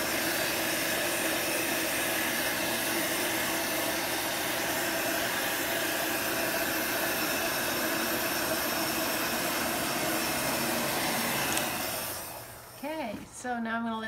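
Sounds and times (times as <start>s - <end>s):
heat gun blowing air: 0.0s - 13.2s.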